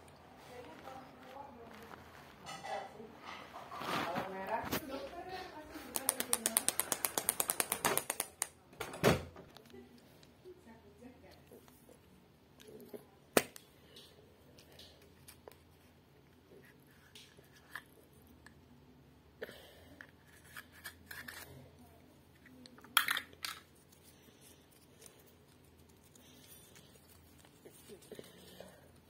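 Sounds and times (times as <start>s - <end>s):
paper rustling and crinkling: 3.6s - 6.0s
plastic capsule clicking: 5.9s - 8.6s.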